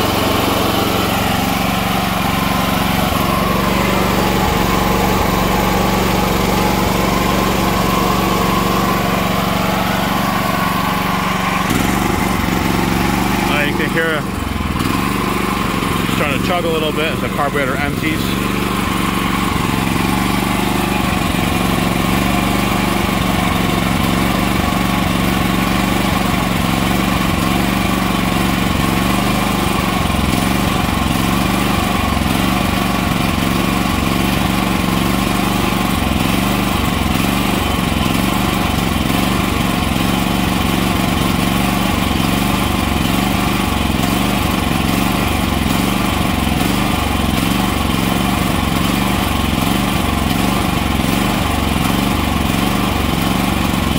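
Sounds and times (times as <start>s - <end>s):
generator engine running: 0.0s - 53.9s.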